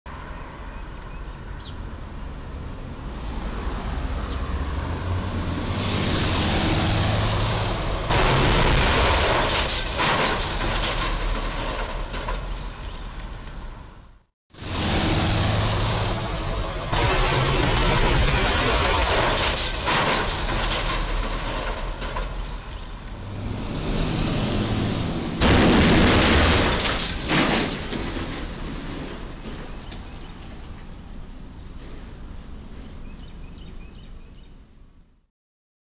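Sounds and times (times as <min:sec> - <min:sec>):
light traffic: 0:00.1 - 0:35.3
truck engine and tyres: 0:00.1 - 0:35.3
loud crash of truck hitting bridge: 0:06.5 - 0:12.4, 0:14.6 - 0:22.4, 0:23.6 - 0:29.7.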